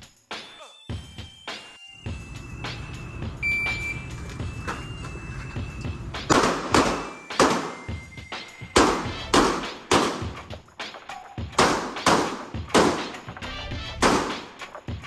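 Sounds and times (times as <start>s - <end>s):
pistol shots with echo: 6.3s - 7.9s, 8.8s - 10.4s, 11.5s - 13.3s, 14.0s - 14.6s.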